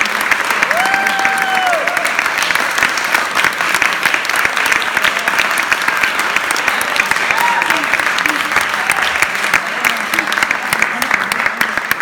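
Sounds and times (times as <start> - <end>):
audience clapping: 0.0 - 12.0
audience cheering: 0.1 - 2.6, 6.8 - 9.6.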